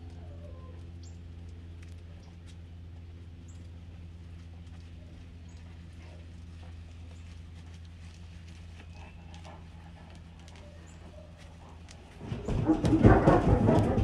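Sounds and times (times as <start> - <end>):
low electrical hum: 0.0 - 14.0
dog footsteps tapping: 7.2 - 14.0.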